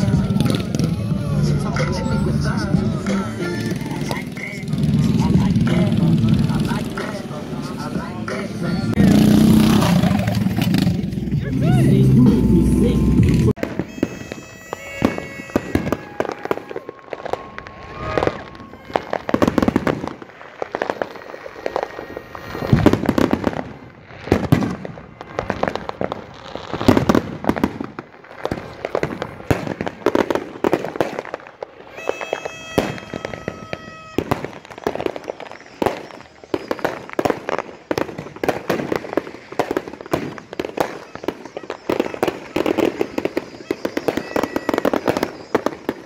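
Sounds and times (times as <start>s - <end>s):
crackling firework pops: 9.6s - 11.2s, 13.6s - 46.0s
steady pitched tone: 11.3s - 13.6s
firework shells booming: 13.6s - 46.0s.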